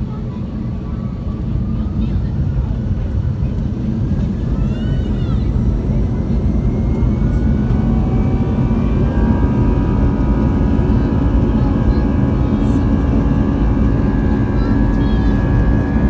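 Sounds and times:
jet engine rumble in cabin: 0.0 - 16.0
thin engine whine: 0.0 - 16.0.

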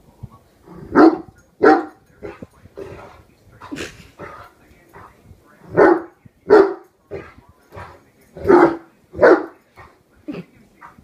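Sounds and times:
dog barking: 0.9 - 3.2, 5.7 - 9.9.

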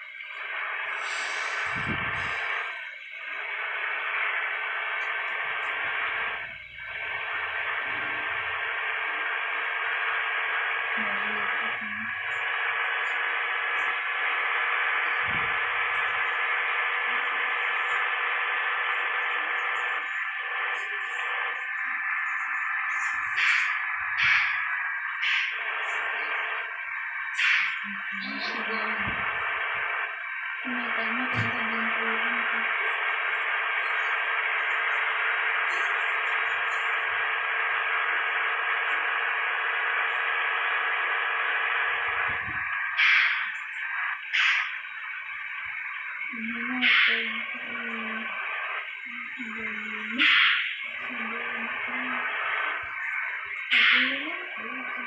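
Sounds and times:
road and wind noise: 1.2 - 2.6, 42.1 - 42.9.

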